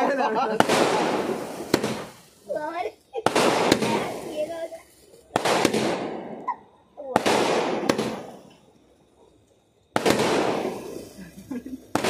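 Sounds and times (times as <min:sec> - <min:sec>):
firework bangs: 0:00.0 - 0:12.0.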